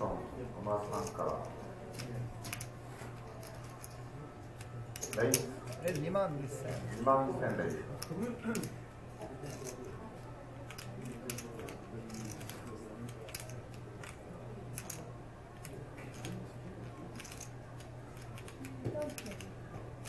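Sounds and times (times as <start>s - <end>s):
murmur of voices: 0.0s - 20.0s
steady low hum: 0.0s - 20.0s
poker chips and cards clicking: 3.3s - 4.0s, 10.6s - 16.4s, 17.1s - 19.5s.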